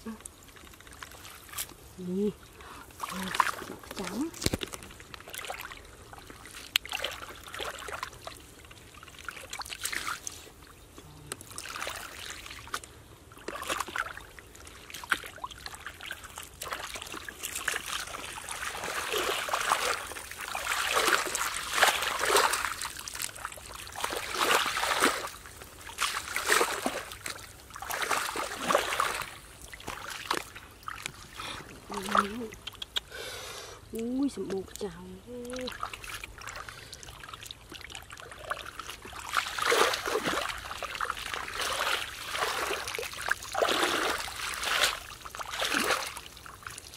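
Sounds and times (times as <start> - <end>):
muddy water splashing: 0.0 - 33.1, 33.9 - 46.9
boots treading through mud: 16.2 - 31.2, 38.7 - 46.2.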